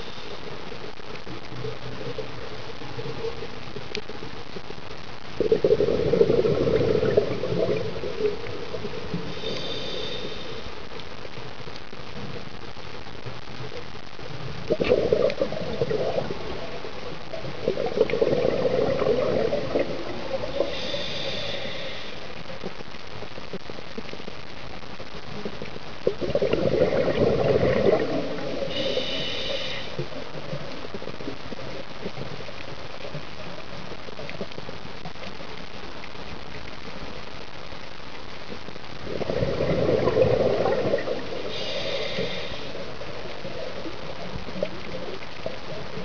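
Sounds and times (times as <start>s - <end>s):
steady underwater hiss: 0.0s - 46.0s
exhaled bubbles rushing: 5.4s - 9.1s, 14.6s - 20.7s, 26.0s - 28.7s, 39.0s - 41.6s
regulator inhalation hiss: 8.4s - 10.8s, 20.4s - 22.6s, 28.6s - 30.2s, 41.3s - 43.3s.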